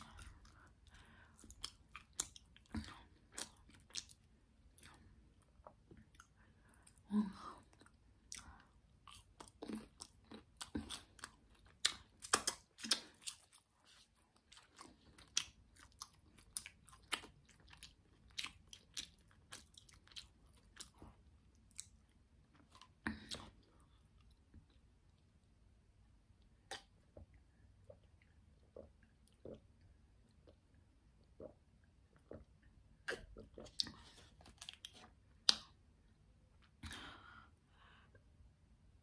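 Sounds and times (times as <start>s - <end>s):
wet mouth clicks: 26.7s - 27.0s, 32.2s - 35.8s.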